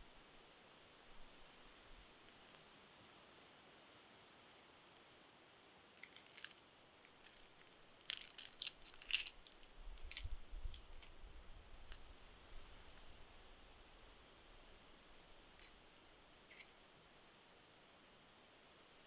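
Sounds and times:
knife scraping mushroom: 0:16.4 - 0:16.7.

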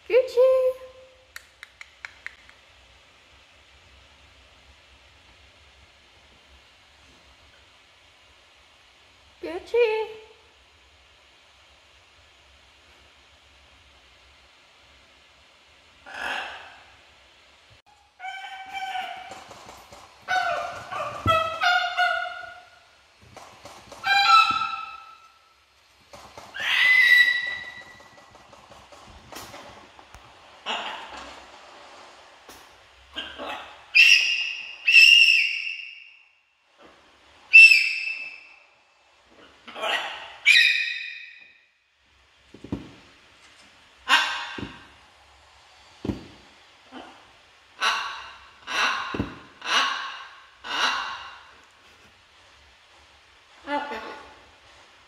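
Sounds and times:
soft rough parrot sounds: 0:16.0 - 0:17.1, 0:30.5 - 0:31.5, 0:46.8 - 0:51.9
macaw pitched calls: 0:24.0 - 0:25.2, 0:26.6 - 0:28.0
macaw squawking: 0:24.0 - 0:25.3, 0:26.5 - 0:28.0, 0:33.2 - 0:36.0, 0:39.8 - 0:41.4
parrot whistled calls: 0:24.0 - 0:25.3, 0:26.6 - 0:28.0, 0:33.9 - 0:36.2, 0:37.5 - 0:38.6, 0:40.4 - 0:41.6.

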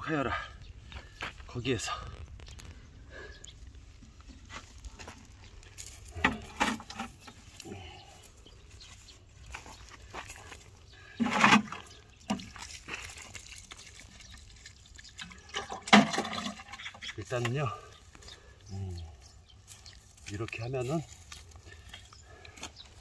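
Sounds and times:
soil and stones scraped by hand: 0:03.6 - 0:18.5
water pouring from watering can: 0:11.2 - 0:17.0.

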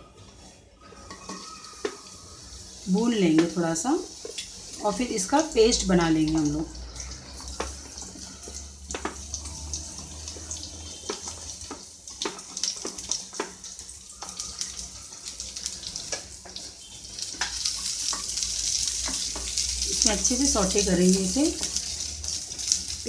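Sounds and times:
onions sizzling in hot oil: 0:00.0 - 0:23.0
wooden spatula clicking and tapping: 0:01.1 - 0:02.2, 0:06.2 - 0:20.6.

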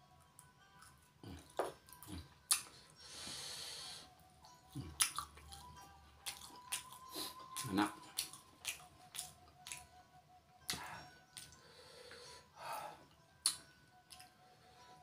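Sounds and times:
faint background music: 0:00.0 - 0:15.0
chewing: 0:04.7 - 0:09.9
wet mouth clicks and lip smacks: 0:05.0 - 0:05.3, 0:06.3 - 0:09.9.

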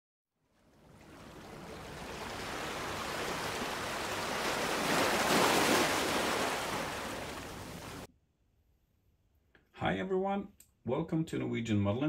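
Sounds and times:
ocean waves breaking: 0:00.6 - 0:08.1.

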